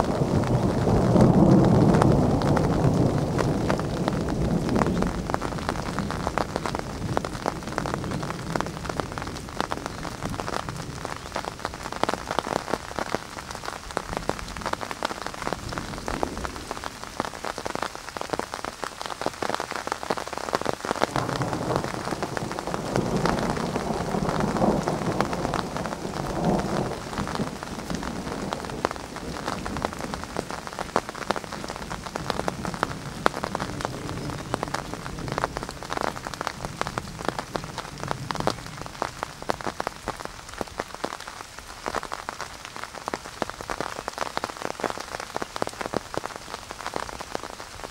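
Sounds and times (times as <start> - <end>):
low roll of thunder: 0.0 - 11.0, 21.1 - 40.2
rain pattering: 0.0 - 47.9.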